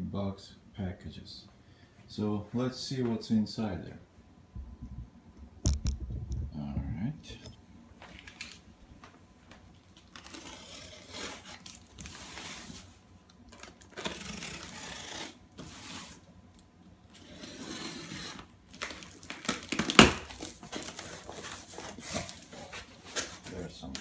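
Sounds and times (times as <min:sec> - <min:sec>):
cardboard flaps crinkling: 0:09.5 - 0:16.2, 0:18.3 - 0:24.0
tape ripping off cardboard box: 0:10.0 - 0:12.9, 0:13.5 - 0:16.3, 0:17.1 - 0:22.5.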